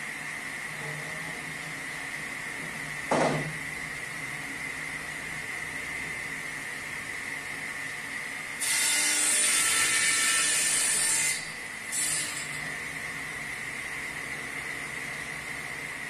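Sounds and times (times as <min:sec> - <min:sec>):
table saw cutting wood: 0:08.6 - 0:13.4.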